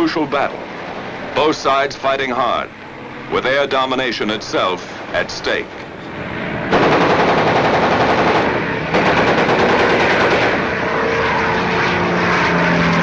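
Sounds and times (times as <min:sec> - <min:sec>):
steady low drone: 0:00.0 - 0:13.0
rapid machine-gun fire: 0:06.7 - 0:10.6.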